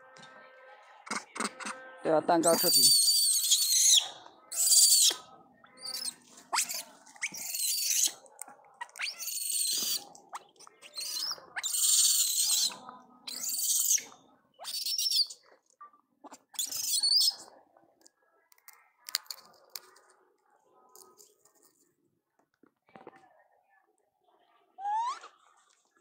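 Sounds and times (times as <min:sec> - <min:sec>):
high-pitched wavering animal calls: 0:02.6 - 0:05.2, 0:24.8 - 0:25.4.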